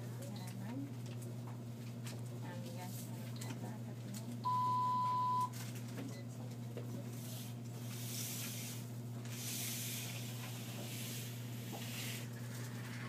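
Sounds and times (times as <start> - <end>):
infusion pump beep: 4.4 - 5.5.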